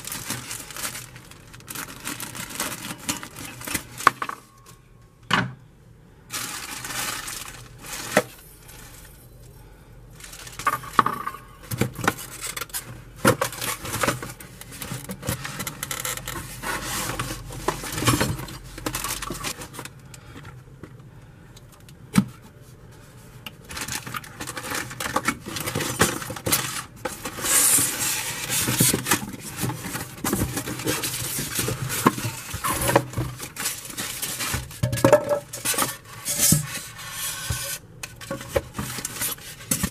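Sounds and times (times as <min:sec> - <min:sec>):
polystyrene foam rustling and scraping: 0:00.0 - 0:04.1, 0:06.3 - 0:09.2, 0:12.1 - 0:19.8, 0:23.8 - 0:34.8, 0:35.4 - 0:39.9.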